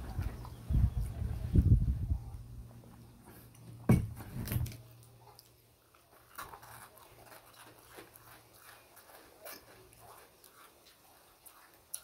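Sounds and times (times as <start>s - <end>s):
charred skin crackling and tearing: 4.4s - 12.0s.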